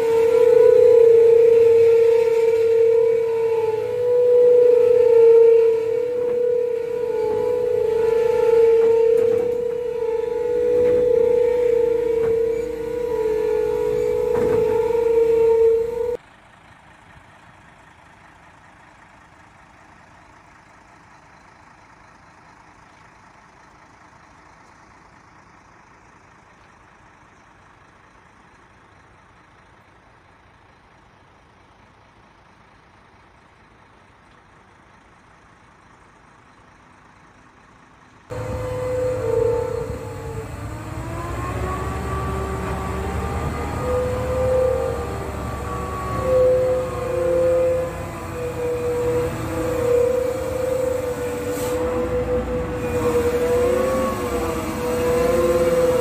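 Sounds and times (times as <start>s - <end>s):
wavering multi-note truck horn: 0.0s - 16.2s, 38.3s - 56.0s
truck diesel engine rumble: 0.0s - 56.0s.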